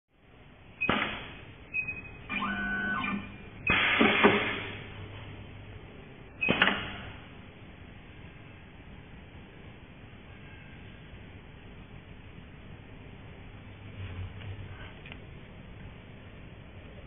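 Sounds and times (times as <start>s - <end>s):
mechanical cutting burst: 3.0s - 4.8s
machine sharp clacks: 3.7s - 4.8s, 6.4s - 7.0s.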